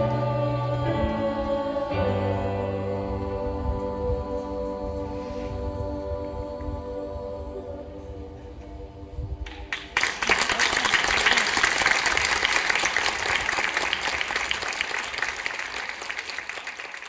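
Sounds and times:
audience applause: 0:09.5 - 0:17.0.

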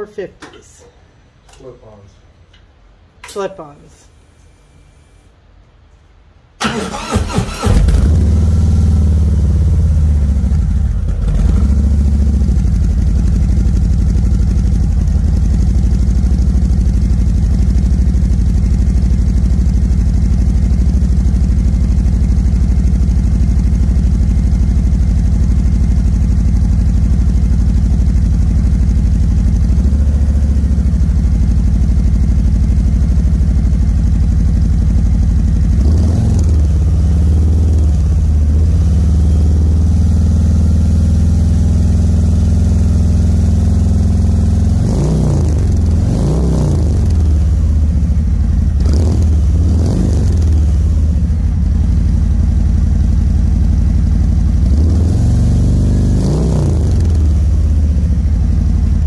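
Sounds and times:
motorcycle engine idling loudly: 0:09.2 - 0:36.0, 0:46.9 - 0:59.0.

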